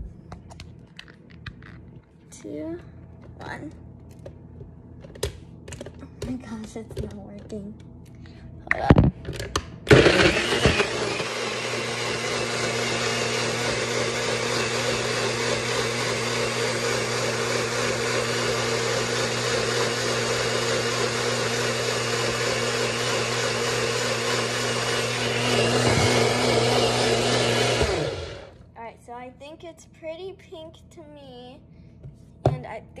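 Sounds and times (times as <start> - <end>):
blender motor whirring: 9.9 - 28.6.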